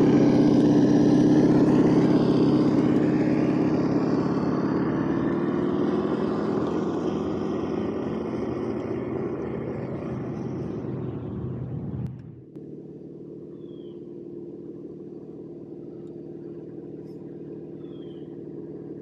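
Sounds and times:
simulated engine sound: 0.0 - 19.0.

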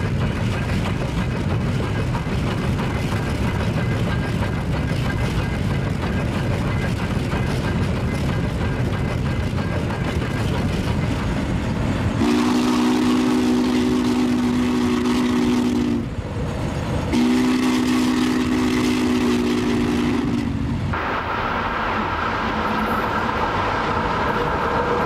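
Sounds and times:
steam locomotive running: 0.0 - 25.0
steam whistle blasts: 12.2 - 16.1, 17.1 - 20.7.

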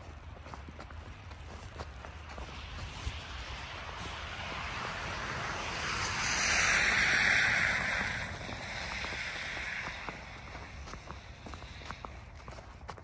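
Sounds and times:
vehicle tyres hissing on wet road: 2.6 - 12.6.

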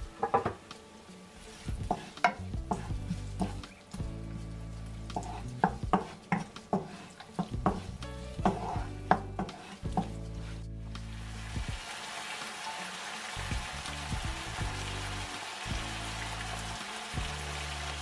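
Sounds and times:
onion frying in oil: 0.0 - 18.0
spatula scraping a pan: 5.1 - 10.7.

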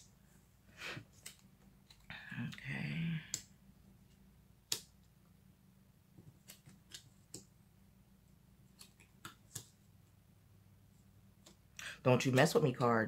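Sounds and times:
cards tapping on bamboo mat: 8.8 - 9.8.

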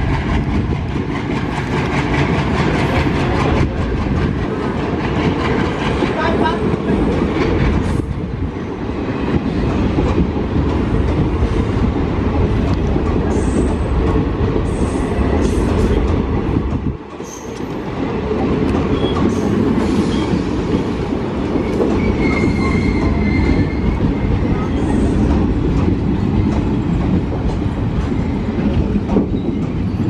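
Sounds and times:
train wheels rumbling on rails: 0.0 - 30.0
high-pitched wheel squeals: 22.0 - 23.9.

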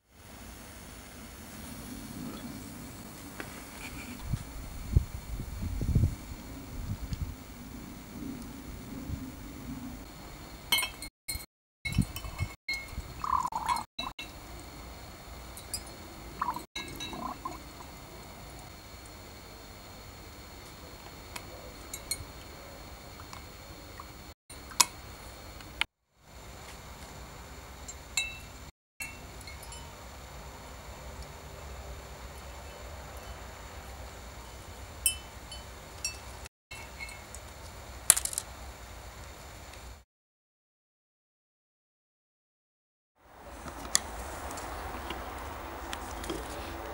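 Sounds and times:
metal clinking against glass jar: 10.7 - 14.3, 15.6 - 17.6.

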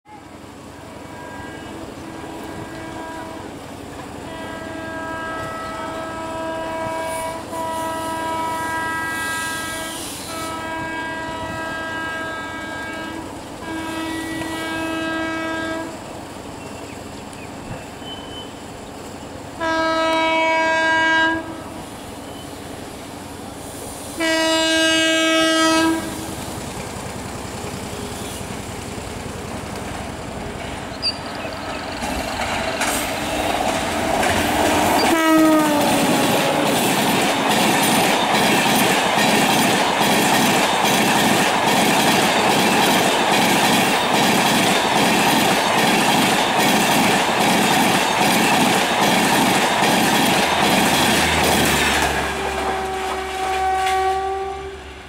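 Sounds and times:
locomotive horn: 0.1 - 16.1, 19.6 - 22.5, 24.1 - 26.5, 32.9 - 38.8, 51.1 - 55.0
train running noise: 0.1 - 55.0.

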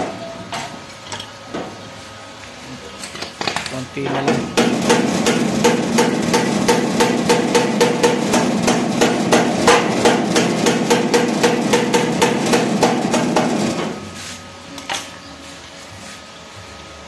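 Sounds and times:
hammer tapping on metal: 4.1 - 13.9.

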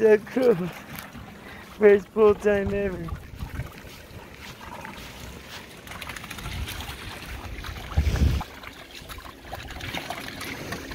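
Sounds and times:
puppies splashing in water: 0.0 - 10.9
wind buffeting microphone: 2.2 - 4.4, 6.2 - 8.6.

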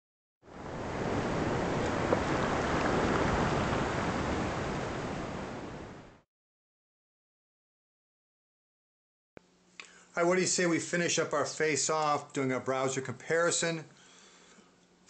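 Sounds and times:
ocean surf washing: 0.5 - 6.2
faint click: 9.8 - 10.0.

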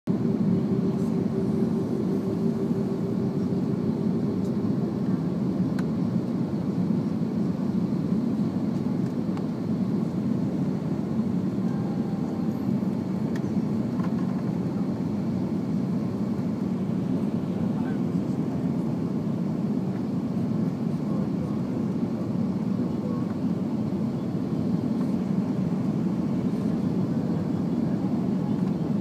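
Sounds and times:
thin steady hum: 0.1 - 5.9
jet cabin engine rush: 0.1 - 29.0.

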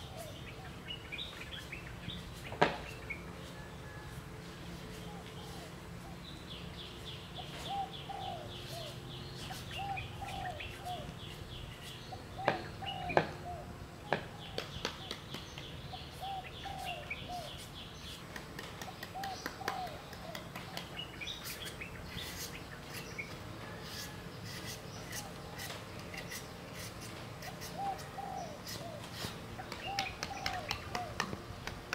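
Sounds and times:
birds chirping: 0.0 - 31.9
knife shaving fruit: 17.5 - 31.8.

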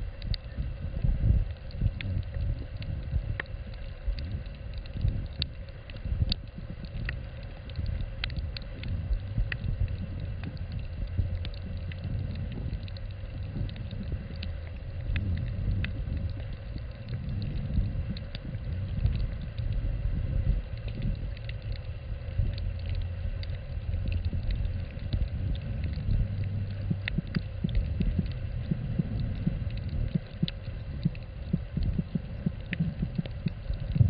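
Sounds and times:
faint steady hum: 0.0 - 34.0
underwater rumble of moving water: 0.0 - 34.0.

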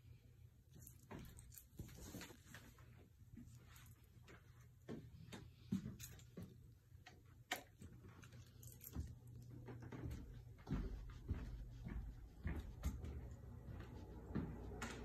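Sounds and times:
faint low hum: 0.0 - 15.0
footsteps taps and knocks: 8.8 - 15.0.

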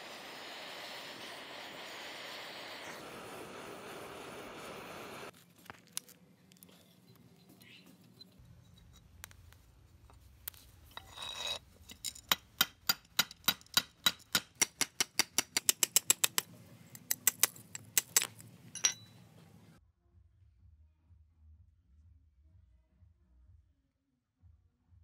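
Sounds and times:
metal scrape: 10.0 - 12.5
sharp metallic tapping: 12.1 - 19.2.

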